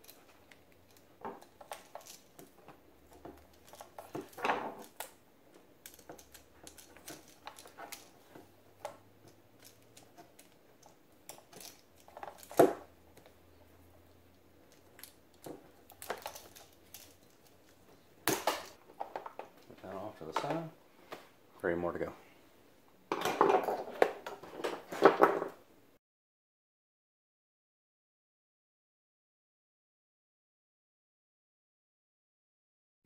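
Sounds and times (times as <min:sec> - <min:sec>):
clicks taps and rustles: 0:00.0 - 0:21.3.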